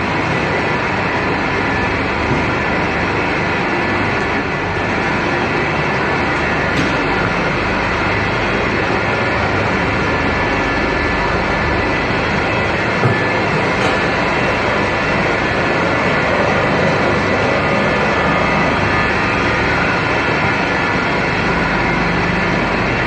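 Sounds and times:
factory machinery din: 0:00.0 - 0:23.0.

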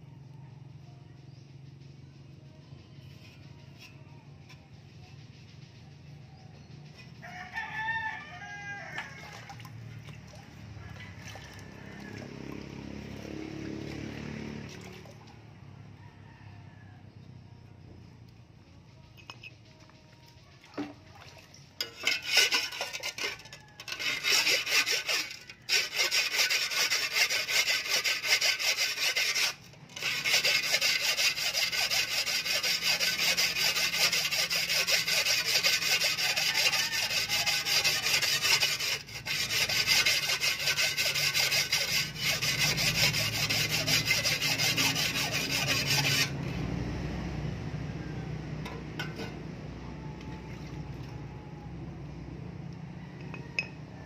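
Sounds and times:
stone scraping shovel blade: 0:03.0 - 0:04.7, 0:21.8 - 0:46.6, 0:48.6 - 0:49.4.

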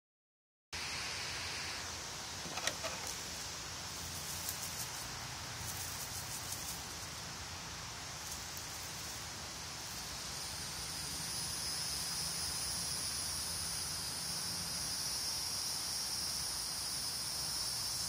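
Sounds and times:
steady background hiss: 0:00.8 - 0:18.0
faint ticks and rustles: 0:02.4 - 0:10.1.

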